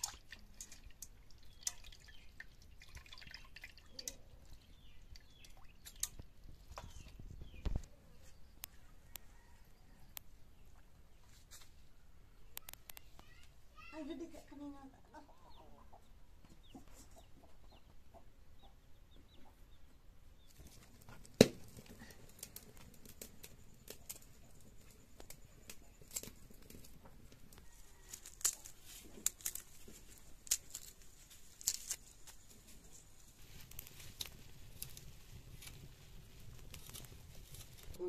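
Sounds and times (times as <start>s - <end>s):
sharp clicks and crackles: 5.2s - 7.9s, 12.5s - 13.4s, 20.5s - 38.0s
chickens clucking: 15.0s - 19.8s.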